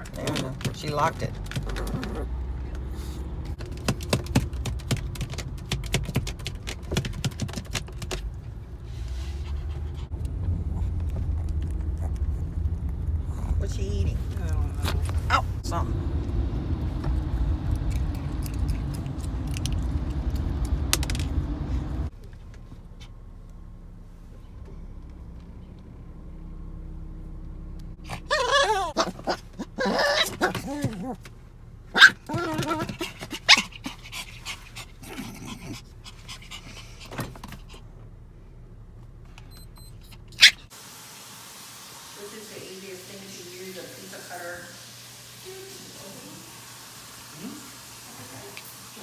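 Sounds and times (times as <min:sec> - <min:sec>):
low steady rumble: 0:08.1 - 0:40.8
dog panting: 0:09.2 - 0:13.8, 0:32.6 - 0:37.8
dog licking and chewing: 0:10.7 - 0:13.3, 0:17.3 - 0:21.1.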